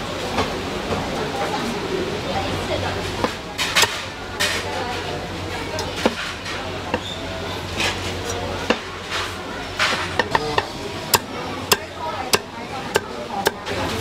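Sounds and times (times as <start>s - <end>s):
cleaver chopping on wood: 9.9s - 13.8s.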